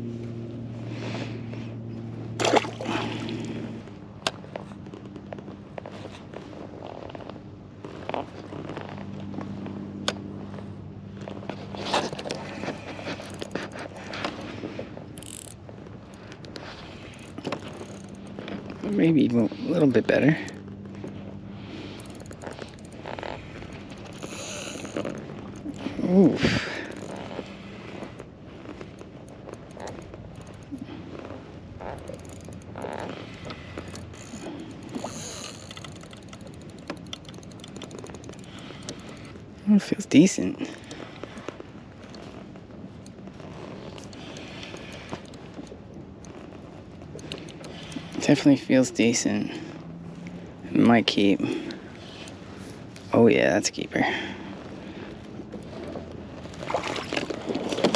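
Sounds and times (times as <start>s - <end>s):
low steady hum: 0.0s - 57.9s
fishing reel clicks and scrapes: 11.6s - 15.6s, 16.2s - 25.9s, 26.6s - 30.8s, 31.4s - 42.4s.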